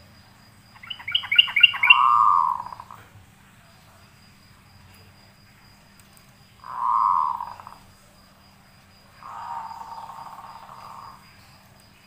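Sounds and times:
bird harsh buzzy calls: 0.8 - 3.0, 6.6 - 7.8, 9.2 - 11.2.

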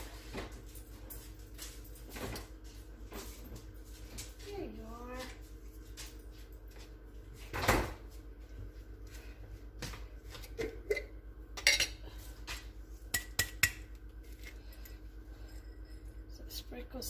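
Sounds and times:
kitchenware clatter: 10.4 - 12.1, 13.1 - 16.4
dishes clinking and knocking: 10.6 - 12.0.

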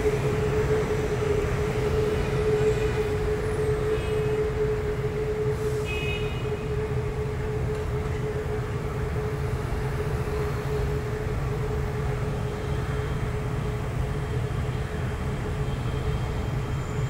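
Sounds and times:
train humming and rumbling: 0.0 - 17.0
high-pitched train squeaks: 16.5 - 17.0.

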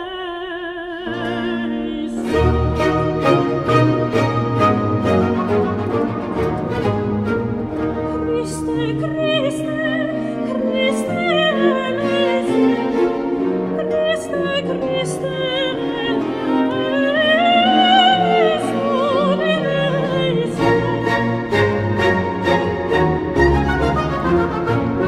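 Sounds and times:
soprano singing with vibrato: 0.0 - 3.0, 8.1 - 22.6
strings and continuo: 0.0 - 25.0.

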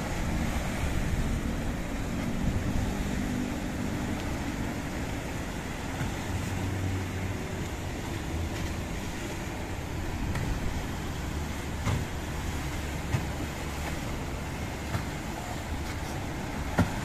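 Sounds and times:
wind on microphone: 0.0 - 6.8
boat engine running: 0.0 - 17.0
waves breaking on rocks: 0.0 - 17.0.

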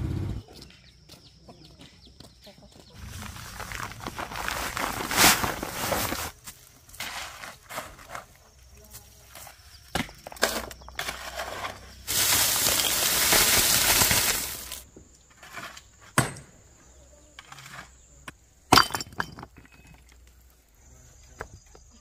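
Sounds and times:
loose rocks clattering: 3.0 - 6.4, 9.4 - 16.3, 18.7 - 20.2.

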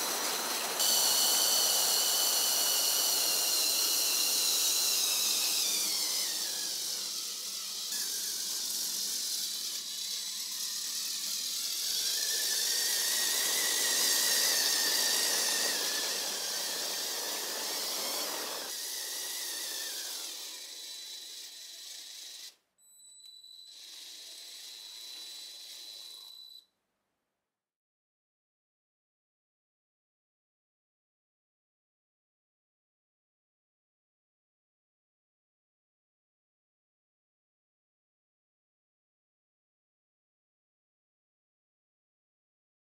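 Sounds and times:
toy train motor whirring: 0.0 - 22.6, 23.4 - 26.6
wheel squeal: 0.0 - 26.6.

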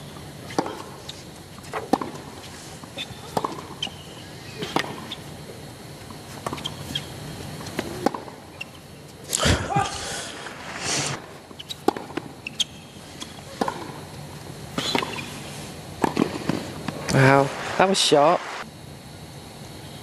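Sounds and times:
balls bouncing on hard court: 0.5 - 5.2, 6.4 - 7.0, 7.6 - 8.4, 11.5 - 14.0, 16.0 - 17.4
tennis balls struck: 1.7 - 2.3, 3.2 - 3.9, 4.5 - 5.1, 7.7 - 8.4, 11.8 - 12.4, 13.2 - 14.0, 16.0 - 17.0.

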